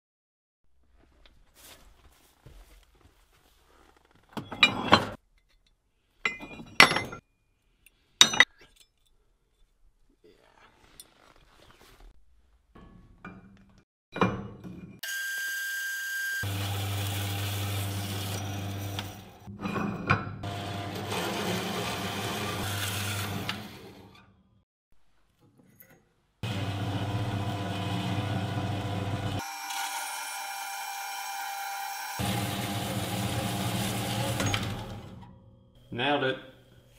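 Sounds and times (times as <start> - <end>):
bandsaw cutting metal: 15.0 - 19.5, 20.4 - 24.2, 26.4 - 35.3.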